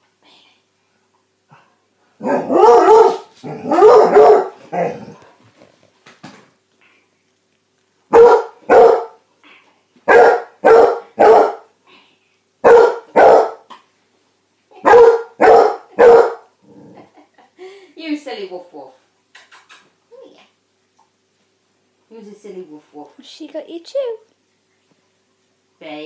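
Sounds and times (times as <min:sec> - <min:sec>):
dog barking: 0:02.2 - 0:05.0, 0:08.1 - 0:09.2, 0:10.1 - 0:11.7, 0:12.6 - 0:13.7, 0:14.8 - 0:16.5.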